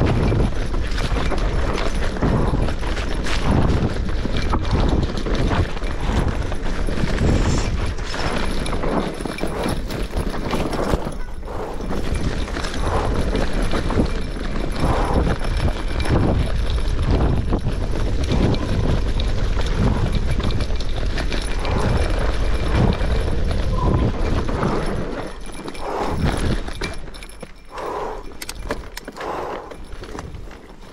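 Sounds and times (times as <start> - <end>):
bike rattling and knocking: 0.0 - 30.9
wind buffeting microphone: 0.0 - 30.9.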